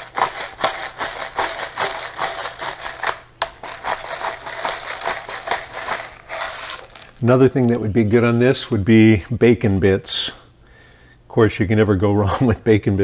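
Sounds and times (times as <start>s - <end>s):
pepper grinder crunching: 0.0s - 7.8s.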